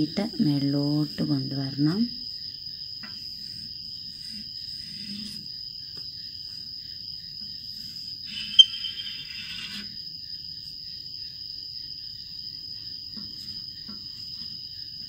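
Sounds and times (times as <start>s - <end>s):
crickets trilling: 0.0s - 15.0s
chalk scratching on a board: 3.2s - 5.6s, 7.7s - 10.0s.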